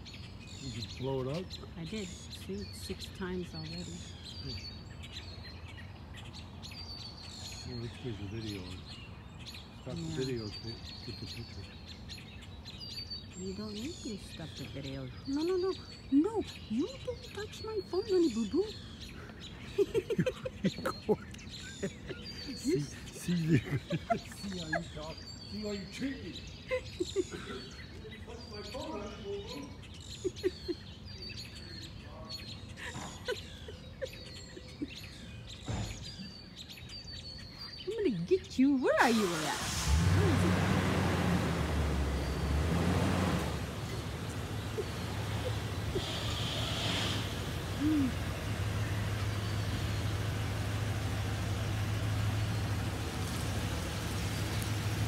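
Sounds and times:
songbirds chirping and singing: 0.0s - 55.0s
truck engine running: 39.4s - 55.0s.

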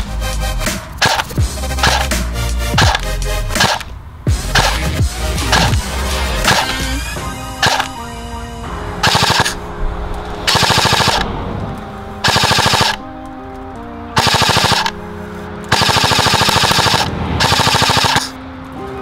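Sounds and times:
background music: 0.0s - 19.0s
airsoft gun firing bursts: 1.0s - 2.1s, 2.8s - 3.0s, 3.6s - 3.9s, 4.6s - 4.8s, 6.5s - 6.8s, 7.6s - 7.9s, 9.0s - 9.6s, 10.5s - 11.3s, 12.2s - 13.0s, 14.2s - 15.0s, 15.7s - 18.3s.

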